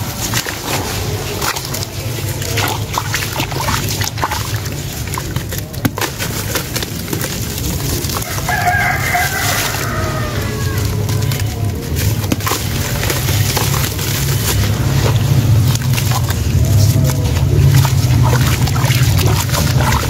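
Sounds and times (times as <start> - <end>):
water splashing: 0.0 - 20.0
wet cement chunks crumbling in water: 0.0 - 20.0
rooster crowing: 8.2 - 11.7.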